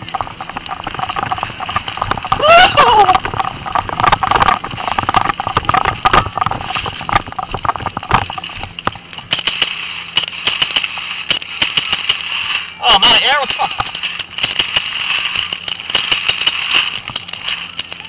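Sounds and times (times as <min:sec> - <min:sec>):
person shouting: 0:02.4 - 0:03.2.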